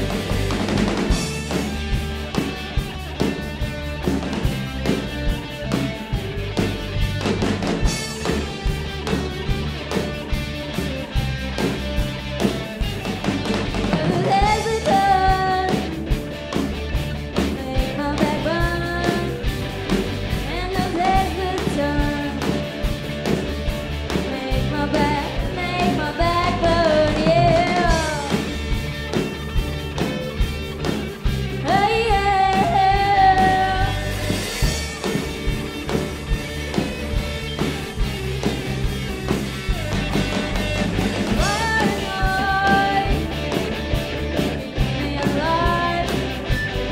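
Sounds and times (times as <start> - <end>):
live rock band playing: 0.0 - 46.9
lead vocal singing: 13.9 - 16.0, 20.4 - 22.5, 24.2 - 28.5, 31.6 - 34.4, 41.3 - 43.4, 44.6 - 46.4.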